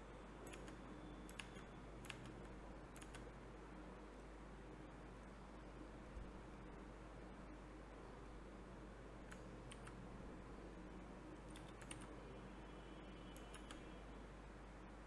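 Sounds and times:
steady low hum: 0.0 - 15.0
keyboard keystrokes and clicks: 0.4 - 3.3, 9.3 - 10.0, 11.4 - 12.2, 13.3 - 13.9.

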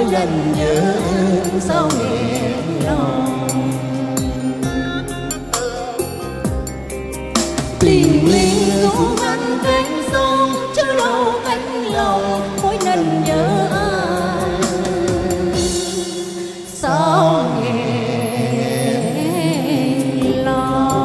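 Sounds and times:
instrumental love song music: 0.0 - 21.0.

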